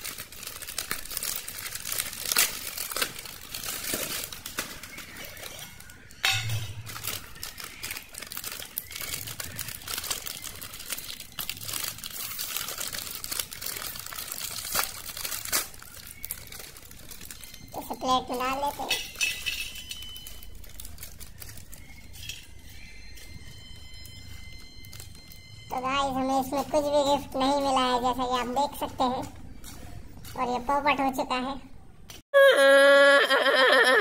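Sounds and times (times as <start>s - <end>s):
plastic snack packet crackling: 0.0s - 30.8s.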